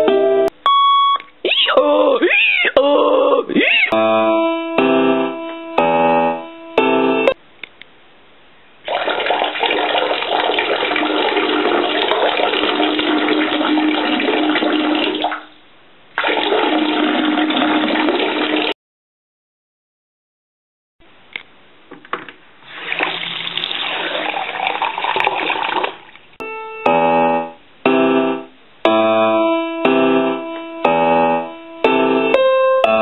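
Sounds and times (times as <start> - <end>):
keyboard notes: 0.0 - 1.3, 3.8 - 7.4, 26.4 - 33.0.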